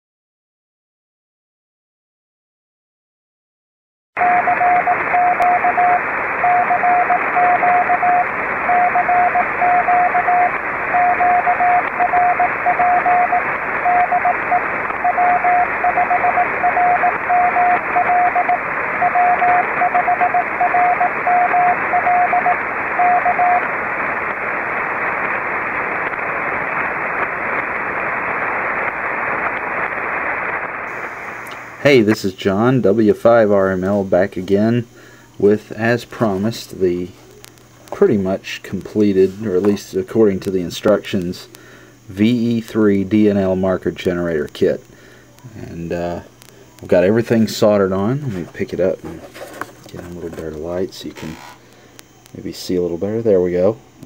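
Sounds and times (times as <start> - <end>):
morse code tone: 4.2 - 23.7
radio static hiss: 4.2 - 54.0.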